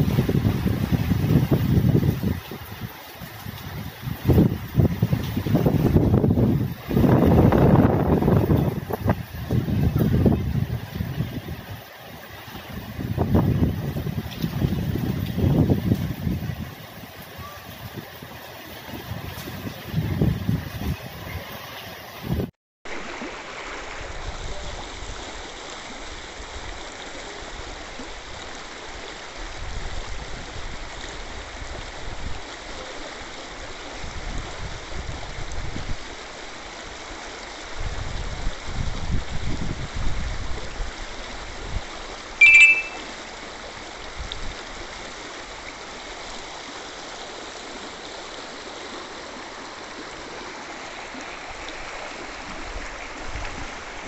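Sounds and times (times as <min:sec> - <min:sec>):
floodwater rushing: 0:00.0 - 0:38.6, 0:40.3 - 0:54.0
high-pitched squeak: 0:42.4 - 0:43.0.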